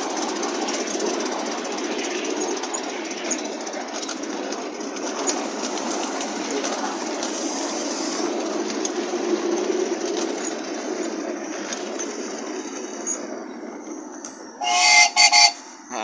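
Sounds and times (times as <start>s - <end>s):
small wheels rumbling on rails: 0.0s - 16.0s
train toot: 14.5s - 16.0s.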